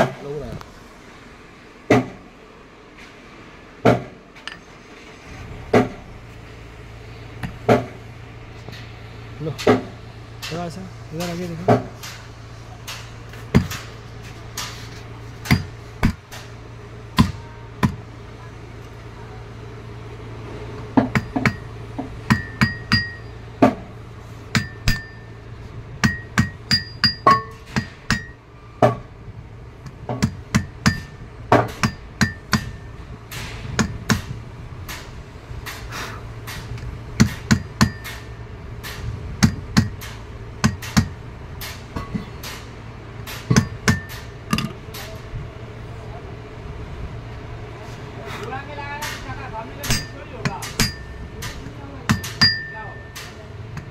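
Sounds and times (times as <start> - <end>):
steady low hum: 0.0 - 53.9
hammer tapping metal: 15.4 - 16.4, 21.0 - 23.8, 24.5 - 25.3, 26.0 - 29.0, 30.1 - 34.3, 36.5 - 42.6, 43.3 - 45.1, 49.0 - 53.9.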